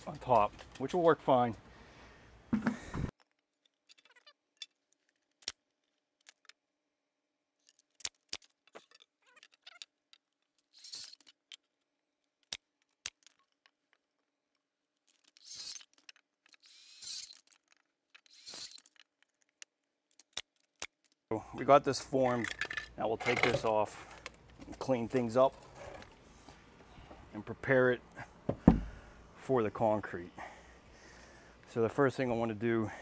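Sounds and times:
hand tools and lumber clicking: 0.0 - 1.7, 7.6 - 27.2.

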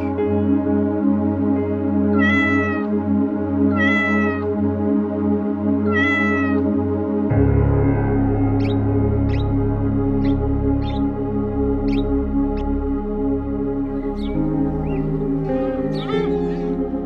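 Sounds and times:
ambient background music: 0.0 - 17.0
cat meowing: 2.1 - 3.0, 3.7 - 4.5, 5.8 - 6.7, 14.1 - 17.0.

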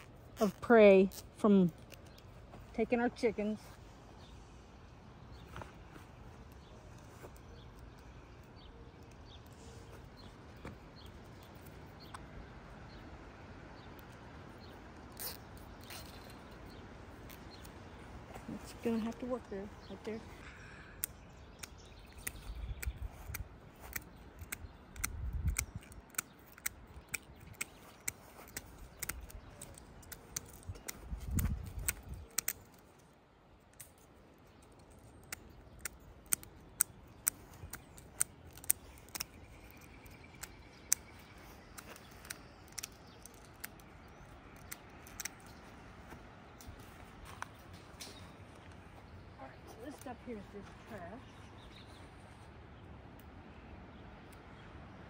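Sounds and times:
shears snipping plastic: 0.0 - 3.4, 14.9 - 17.9, 21.0 - 45.8.

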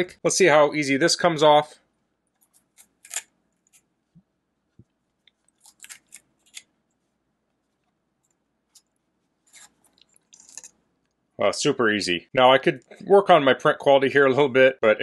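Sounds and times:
print crackling as it peels: 2.3 - 3.9, 5.0 - 11.2.

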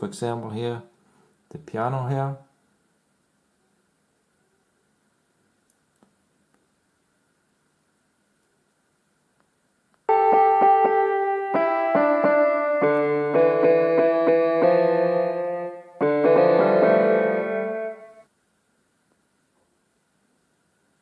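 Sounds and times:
synthesized piano notes: 10.1 - 18.3.

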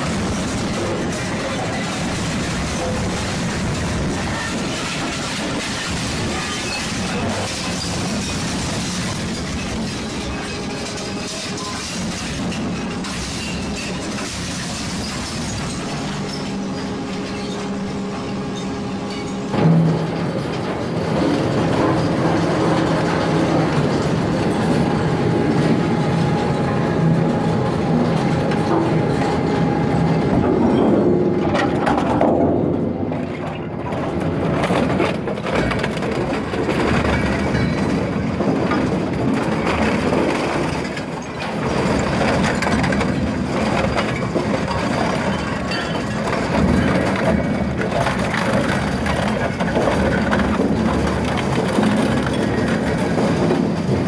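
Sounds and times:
metal cracking and crunching: 0.0 - 17.8, 19.1 - 54.0
shredder machine hum: 14.3 - 54.0.

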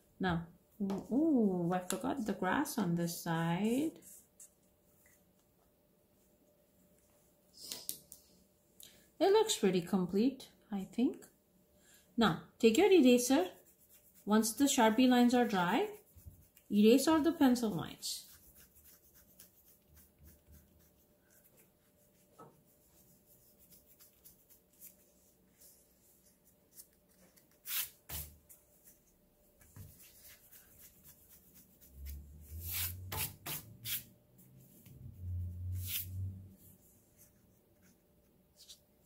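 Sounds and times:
eraser rubbing on paper: 13.3 - 26.4, 29.7 - 34.1.

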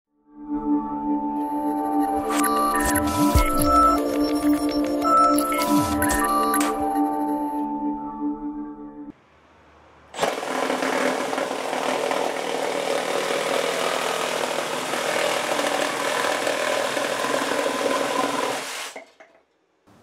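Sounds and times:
reciprocating saw cutting timber: 10.2 - 19.0.

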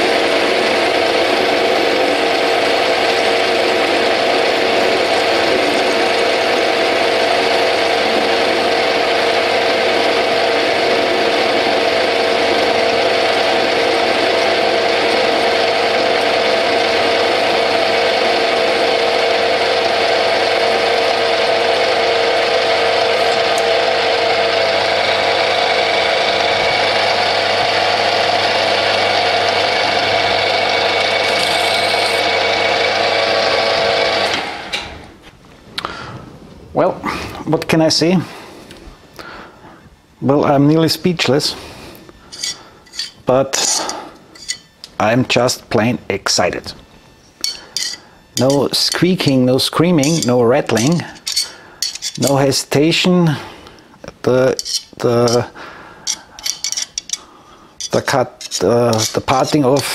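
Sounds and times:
lathe running under load: 0.0 - 34.9, 47.4 - 52.5, 58.5 - 59.9
parting blade cutting steel bar: 31.2 - 32.3, 42.3 - 44.7, 47.4 - 52.5, 54.5 - 55.5, 56.1 - 59.9.

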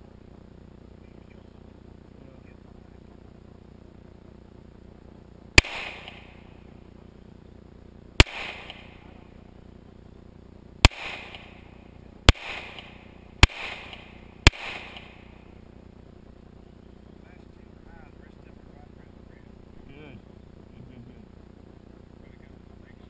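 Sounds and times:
pistol shots with echo: 5.6 - 6.5, 8.2 - 9.2, 10.8 - 15.6.

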